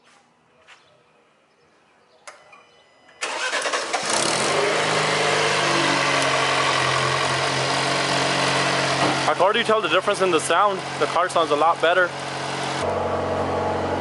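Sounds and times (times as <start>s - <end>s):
car engine starting and idling: 3.2s - 14.0s.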